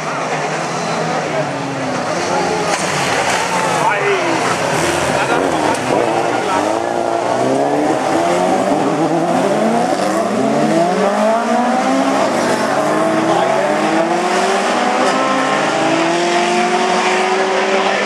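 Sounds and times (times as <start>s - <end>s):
race car engines revving: 0.0s - 18.0s.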